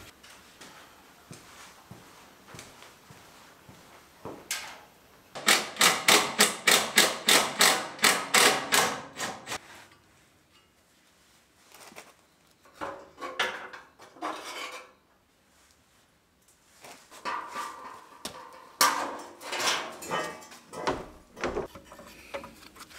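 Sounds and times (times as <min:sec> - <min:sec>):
scattered knocks and scrapes: 0:17.1 - 0:22.9.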